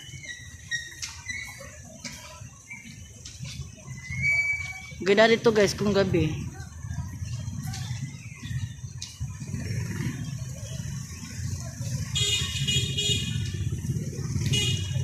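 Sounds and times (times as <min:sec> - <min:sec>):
street traffic rumbling: 0:00.0 - 0:15.0
vehicle horn: 0:12.2 - 0:13.5, 0:14.4 - 0:15.0.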